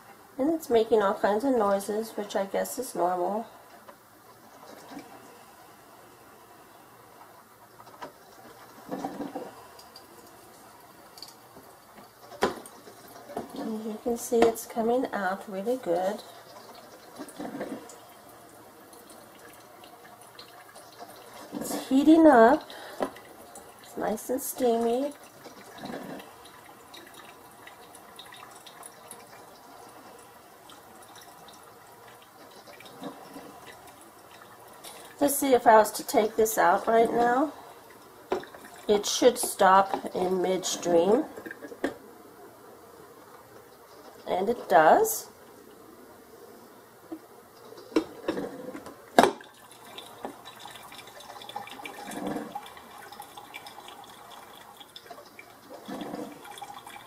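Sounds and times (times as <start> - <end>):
coffee maker dripping hiss: 8.0 - 40.2, 49.1 - 57.0.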